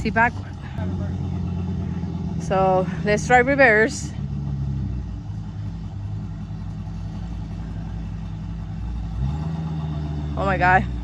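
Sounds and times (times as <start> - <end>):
motorhome engine running: 0.0 - 11.0.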